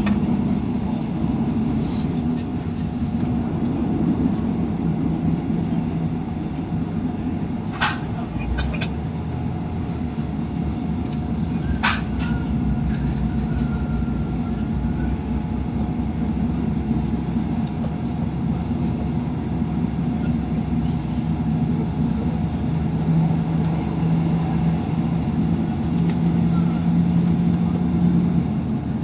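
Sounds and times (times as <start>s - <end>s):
train rumbling on rails: 0.0s - 29.0s.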